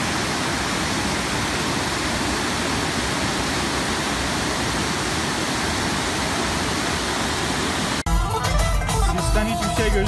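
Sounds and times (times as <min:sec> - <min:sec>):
whitewater rushing over rocks: 0:00.0 - 0:08.0.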